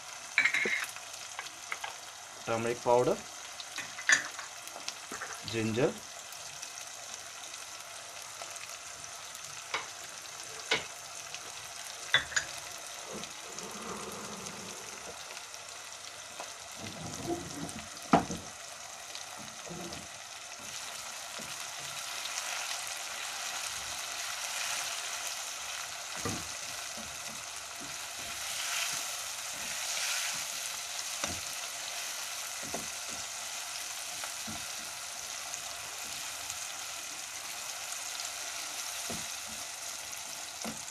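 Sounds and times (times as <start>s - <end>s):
food sizzling in a wok: 0.0s - 40.9s
spatula stirring and scraping: 24.2s - 33.3s.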